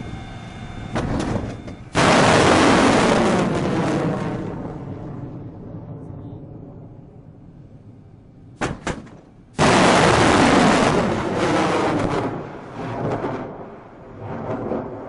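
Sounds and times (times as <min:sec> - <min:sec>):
missile launch roar: 0:01.0 - 0:07.0, 0:09.6 - 0:13.6.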